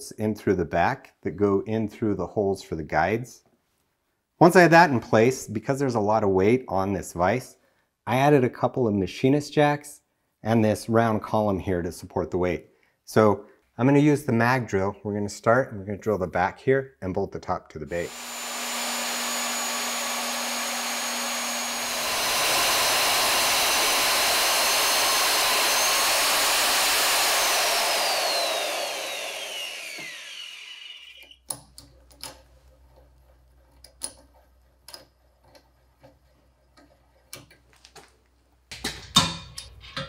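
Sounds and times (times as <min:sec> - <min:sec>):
magnetic drill drilling steel: 0:18.0 - 0:31.4.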